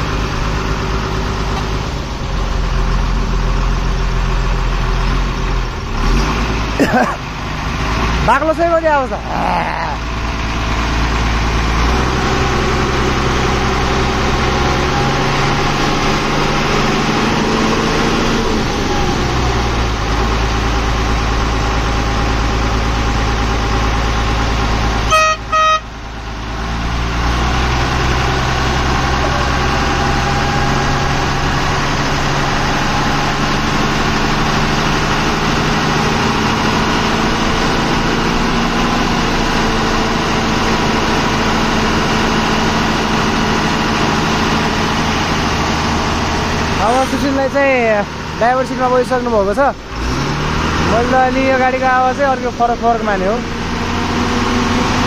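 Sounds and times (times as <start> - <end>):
truck engine running: 0.0 - 55.0
truck horn toots: 25.0 - 26.0.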